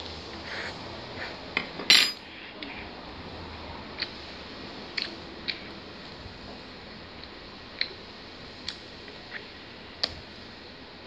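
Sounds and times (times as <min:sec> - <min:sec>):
dishes clattering: 0:01.6 - 0:02.2
plates and utensils clicking: 0:01.6 - 0:02.2.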